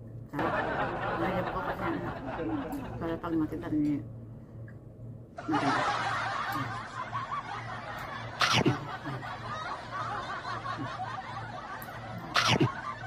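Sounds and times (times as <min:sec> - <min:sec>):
people snickering and chuckling: 0:00.4 - 0:03.0, 0:05.4 - 0:13.0.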